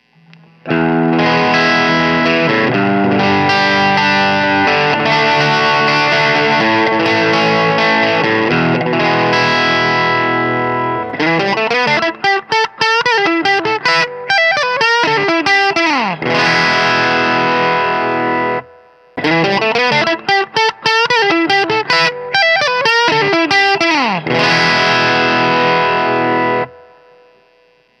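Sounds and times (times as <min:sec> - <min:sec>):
overdriven electric guitar: 0:00.0 - 0:28.0.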